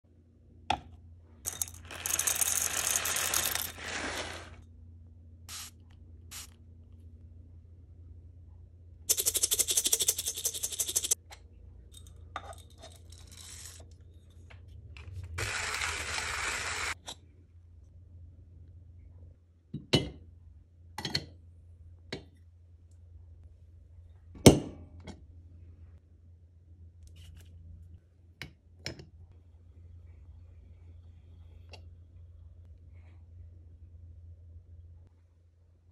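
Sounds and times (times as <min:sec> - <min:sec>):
coffee grounds rattling: 0:01.5 - 0:04.6, 0:09.1 - 0:11.2.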